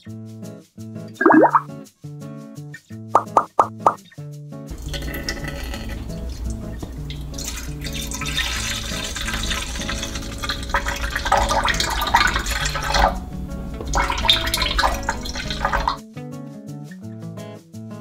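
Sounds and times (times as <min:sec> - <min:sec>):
milk pouring into metal bowl: 0:04.7 - 0:16.0.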